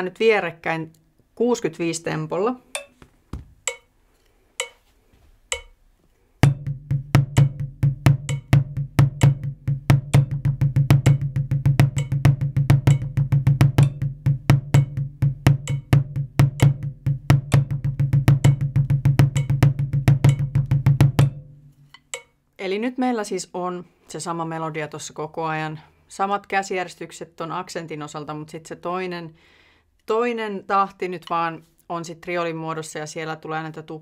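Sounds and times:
metronome clicks: 0:02.7 - 0:03.0, 0:03.6 - 0:03.9, 0:04.6 - 0:04.8, 0:05.5 - 0:05.8
drumsticks on practice pad: 0:02.7 - 0:11.3, 0:11.9 - 0:16.9, 0:19.3 - 0:22.4.

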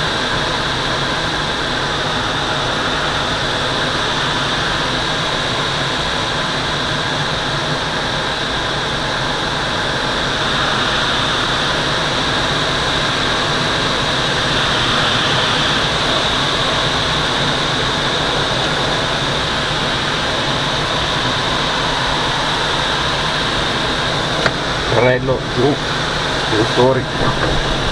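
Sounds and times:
air rushing past glider: 0:17.6 - 0:27.9.

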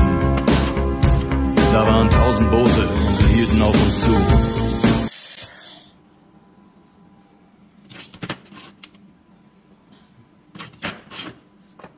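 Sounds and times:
laser welder hissing and crackling: 0:02.9 - 0:05.9.

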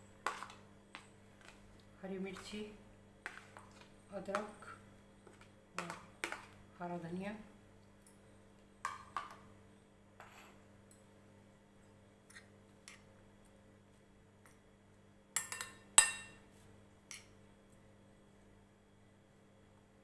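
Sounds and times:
spoon clinking against glass bowl: 0:15.4 - 0:16.4.

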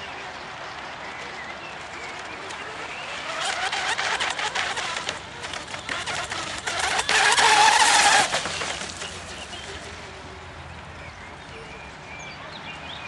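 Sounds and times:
hull slapping on water: 0:01.8 - 0:10.0
electric motor whining: 0:02.1 - 0:10.1.

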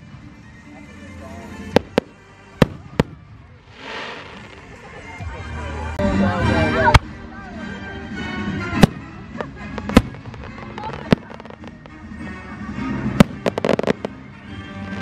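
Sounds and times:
firework bangs: 0:01.5 - 0:04.9, 0:08.8 - 0:12.1, 0:12.9 - 0:15.0
crackling pops: 0:01.7 - 0:04.7, 0:08.8 - 0:12.0, 0:13.2 - 0:14.2.

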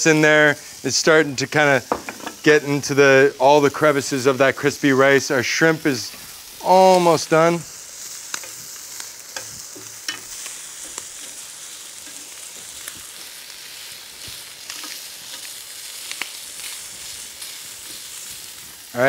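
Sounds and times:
shrimp sizzling on grill pan: 0:00.0 - 0:19.0
metal tongs clicking against pan: 0:14.7 - 0:15.5.

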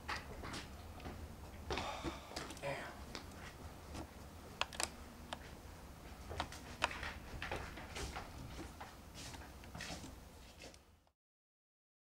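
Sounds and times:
steady low hum: 0:00.0 - 0:11.1.

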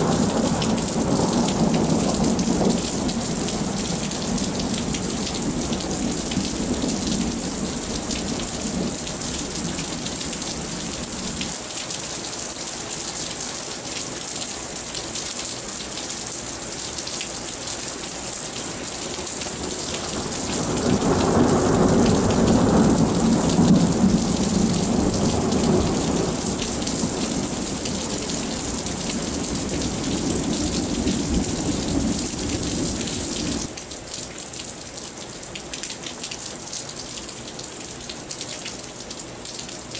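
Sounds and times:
rolling thunder: 0:00.0 - 0:11.4, 0:19.7 - 0:33.7
heavy rain: 0:00.0 - 0:39.9.

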